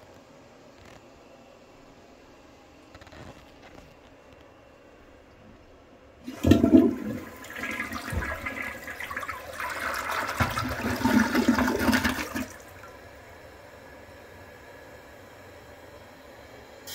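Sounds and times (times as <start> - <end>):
toilet flushing: 6.2 - 13.1.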